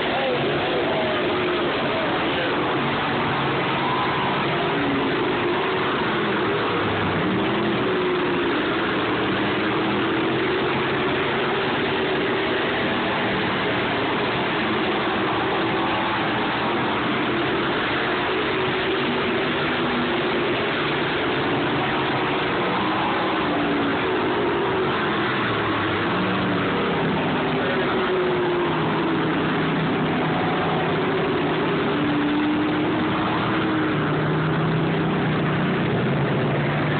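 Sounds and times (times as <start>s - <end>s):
race car engines: 0.0s - 36.9s.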